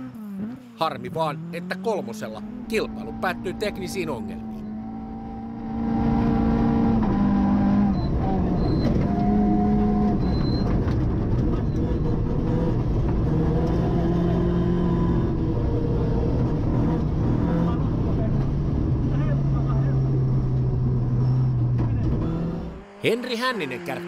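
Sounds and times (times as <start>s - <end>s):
rally car engine revving: 0.0s - 24.0s
road and snow noise: 0.0s - 24.0s.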